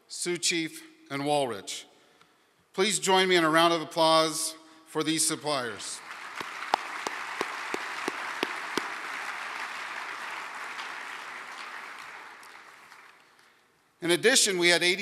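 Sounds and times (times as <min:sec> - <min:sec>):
audience applauding: 0:06.0 - 0:13.6
nearby hand claps: 0:06.2 - 0:13.3.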